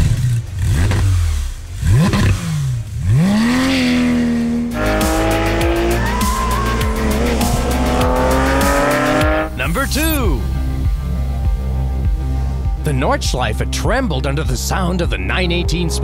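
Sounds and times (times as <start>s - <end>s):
car engine revving: 0.0s - 9.7s.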